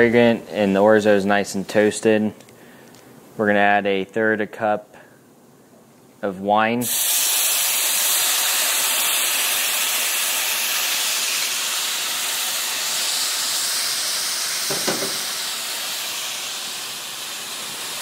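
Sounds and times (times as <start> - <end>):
wine sizzling in a hot pan: 6.8 - 18.0.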